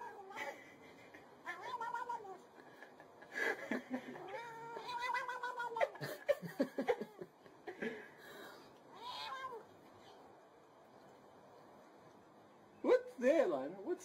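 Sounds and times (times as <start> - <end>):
cat meowing: 1.4 - 2.5, 4.2 - 6.0, 8.9 - 9.7.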